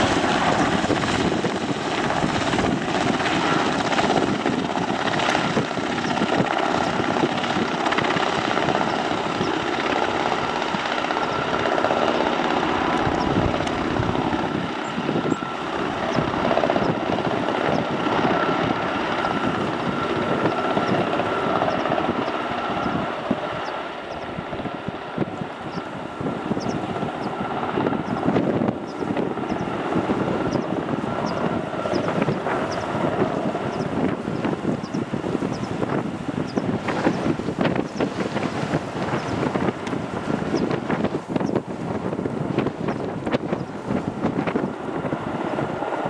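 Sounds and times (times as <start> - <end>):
high whine: 0.0 - 24.5
helicopter rotor noise: 0.0 - 46.0.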